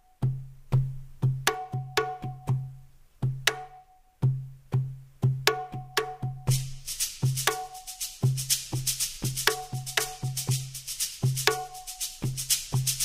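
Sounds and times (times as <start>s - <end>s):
drum and wood block beat: 0.1s - 13.0s.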